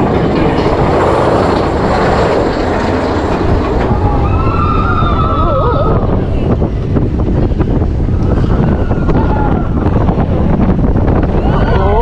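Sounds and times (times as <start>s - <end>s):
roller coaster wheels rumbling: 0.0s - 12.0s.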